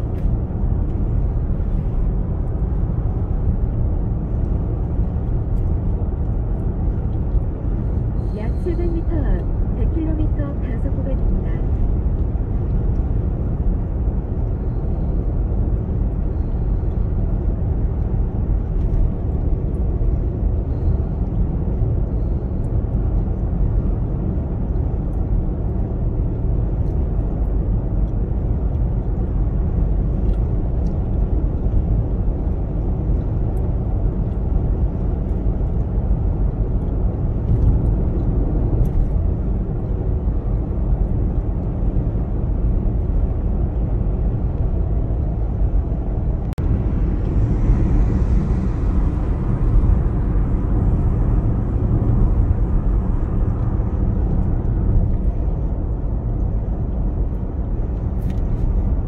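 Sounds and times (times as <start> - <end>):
car cabin road rumble: 0.0 - 59.0.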